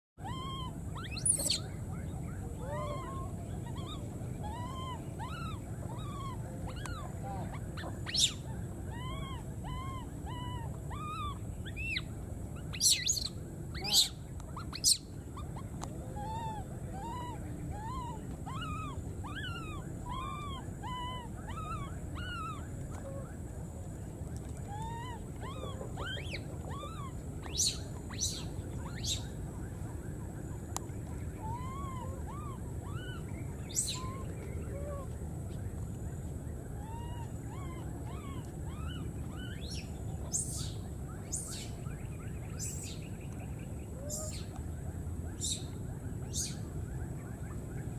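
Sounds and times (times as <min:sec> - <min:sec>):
shrill monkey squeals: 0:00.2 - 0:01.8, 0:02.6 - 0:12.1, 0:12.7 - 0:22.7, 0:24.7 - 0:29.3, 0:31.4 - 0:35.1, 0:36.8 - 0:41.7
baby monkeys cooing: 0:00.2 - 0:23.4, 0:24.5 - 0:35.2, 0:36.8 - 0:41.7, 0:44.0 - 0:44.6.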